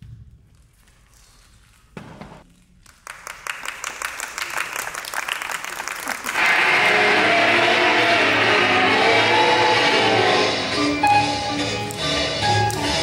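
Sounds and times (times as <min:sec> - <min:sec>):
audience clapping: 0:02.8 - 0:13.0
recorded music: 0:06.4 - 0:13.0.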